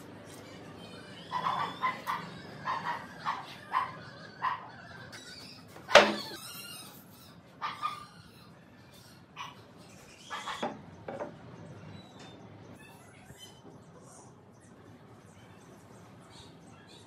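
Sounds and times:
dog barking: 1.3 - 4.7, 7.6 - 8.1.

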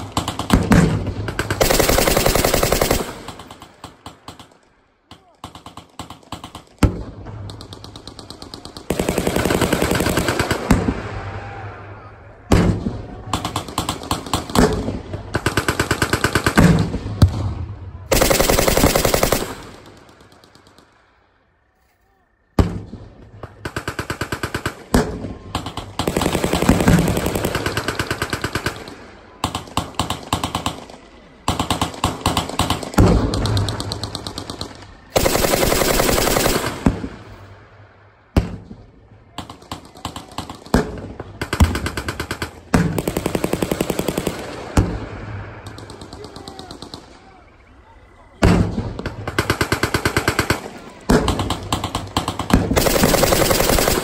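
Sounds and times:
machine guns firing bursts: 0.0 - 4.7, 5.4 - 10.9, 13.3 - 17.0, 18.1 - 20.9, 23.4 - 37.5, 39.3 - 45.0, 48.4 - 54.0.

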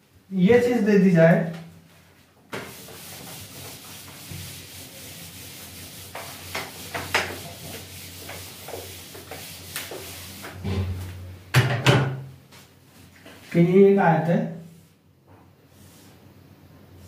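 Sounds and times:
duster rubbing on whiteboard: 2.5 - 10.6.

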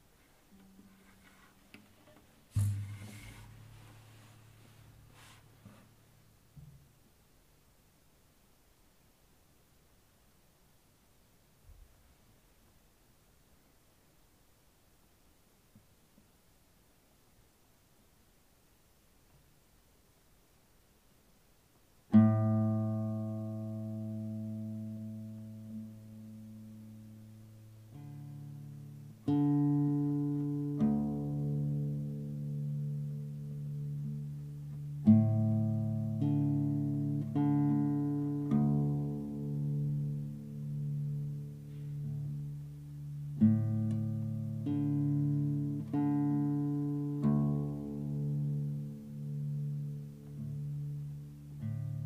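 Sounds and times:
classical guitar plucked notes: 0.5 - 5.3, 22.1 - 52.0.

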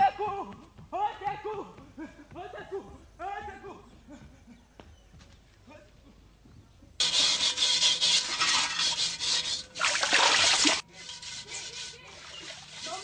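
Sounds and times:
harsh rasping scraping: 7.0 - 13.0.

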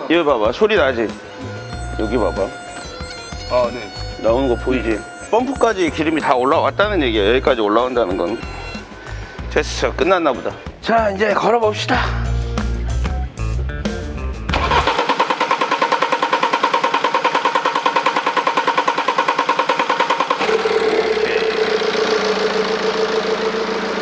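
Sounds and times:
starter motor cranking: 0.3 - 10.1, 14.5 - 24.0
diesel engine idling: 0.8 - 10.1, 14.5 - 24.0.

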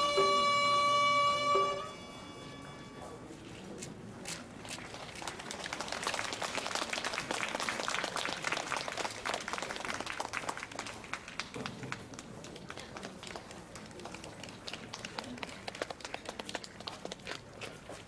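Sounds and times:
audience applauding: 4.6 - 17.6.

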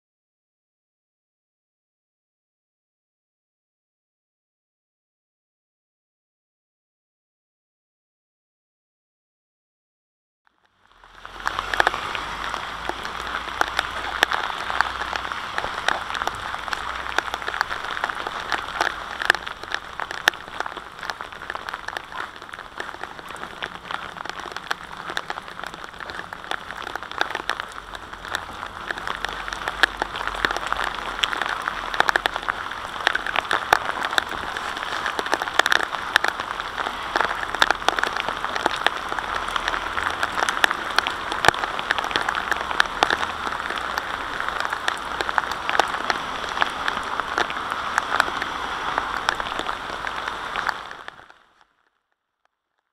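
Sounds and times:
steady rain: 10.5 - 51.9.

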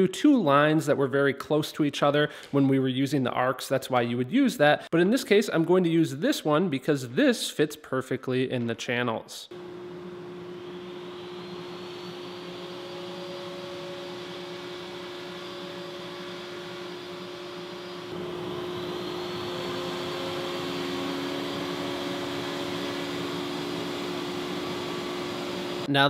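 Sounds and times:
router motor whine: 9.5 - 25.9.

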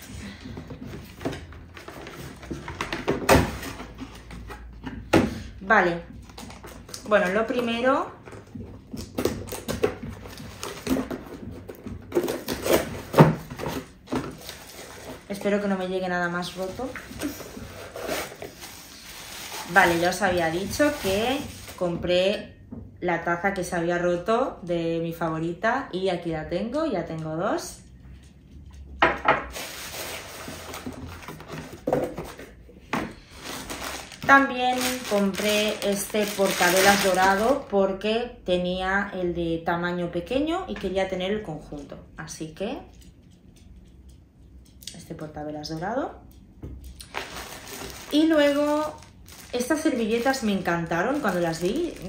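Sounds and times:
cardboard and packing rustling: 0.0 - 5.5, 6.2 - 22.1, 29.5 - 37.7, 47.0 - 52.0.

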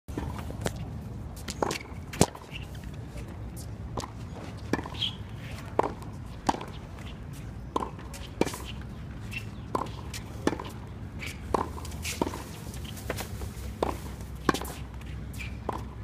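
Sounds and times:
tennis ball hit with racket: 7.7 - 16.0.

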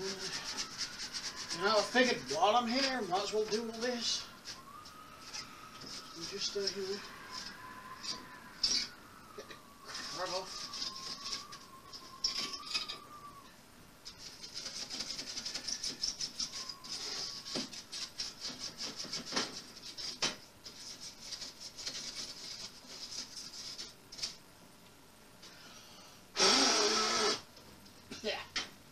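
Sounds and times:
brush scrubbing dust: 0.0 - 7.4, 9.9 - 11.6, 14.1 - 24.3.

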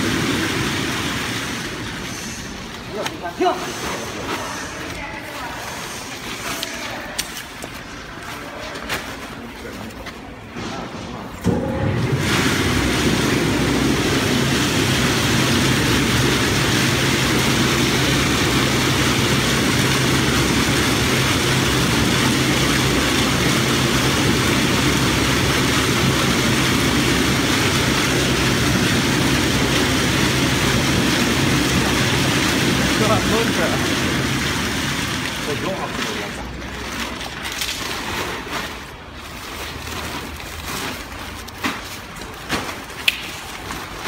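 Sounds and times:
motor hum: 11.5 - 35.7.

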